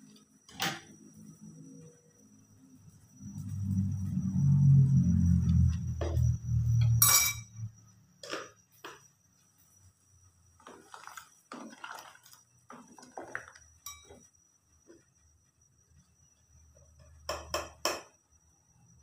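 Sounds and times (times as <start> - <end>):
faint high whine: 0.0 - 19.0
sharp clink: 6.8 - 7.6
spatula stirring in metal pot: 10.6 - 14.3.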